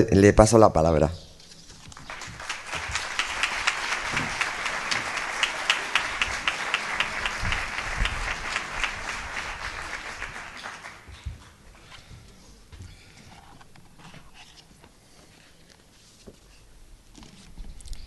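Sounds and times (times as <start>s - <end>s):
audience applauding: 1.9s - 11.6s.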